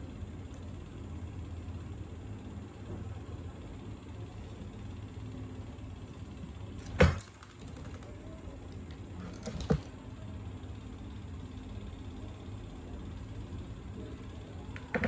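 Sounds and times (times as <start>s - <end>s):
small clatter: 6.8s - 10.0s.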